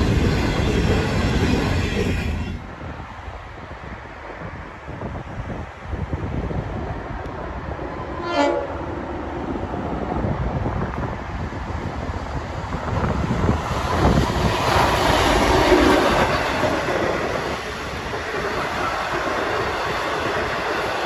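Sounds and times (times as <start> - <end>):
train wheels running on rails: 0.0 - 4.4, 8.9 - 21.0
diesel locomotive passing: 0.0 - 21.0.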